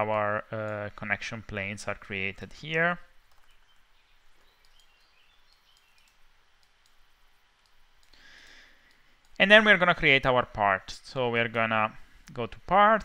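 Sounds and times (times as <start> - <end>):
soft hiss: 0.1 - 13.0
computer mouse clicks: 3.2 - 3.8, 4.4 - 9.4.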